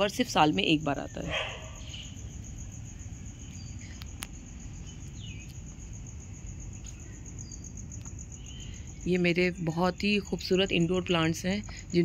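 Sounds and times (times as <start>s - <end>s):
high-pitched insect trill: 0.0s - 12.0s
bird chirp: 1.0s - 2.3s, 3.3s - 5.7s, 6.7s - 10.0s
sharp clicks: 3.5s - 4.4s.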